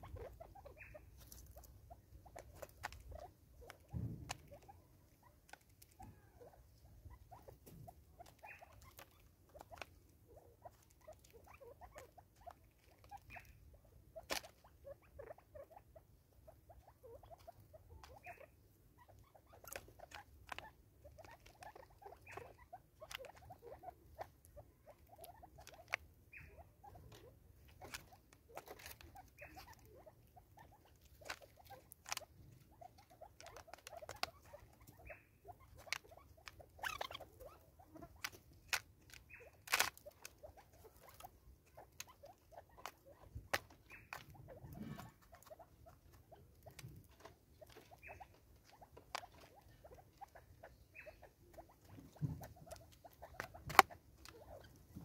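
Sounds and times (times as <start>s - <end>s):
soft short bird calls: 0.0s - 1.4s
beaks tapping on plastic and wood: 30.8s - 55.0s.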